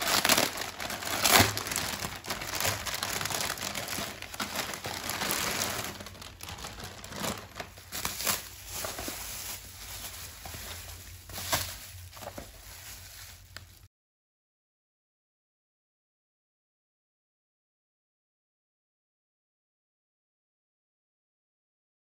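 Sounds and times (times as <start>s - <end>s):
bubble wrap rustling: 0.0s - 13.9s
plastic bag crinkling: 0.0s - 13.9s.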